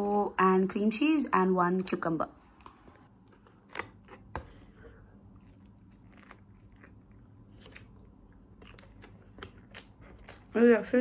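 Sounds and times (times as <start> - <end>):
faint chewing: 2.6 - 11.0.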